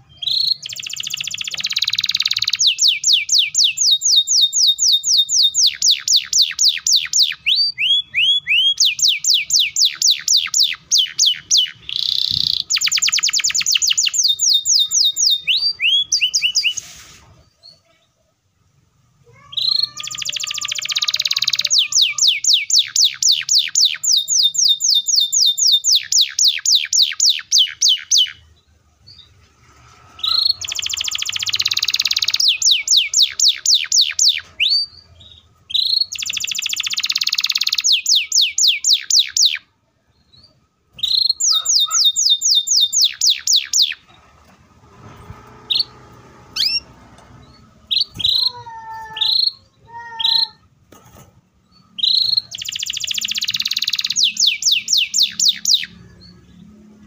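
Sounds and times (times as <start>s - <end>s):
canary singing: 0.0s - 18.1s, 19.2s - 50.9s, 51.5s - 57.0s.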